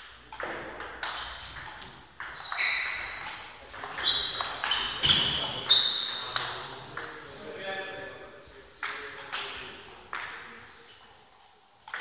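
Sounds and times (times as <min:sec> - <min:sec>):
table tennis ball hits: 0:00.0 - 0:05.4.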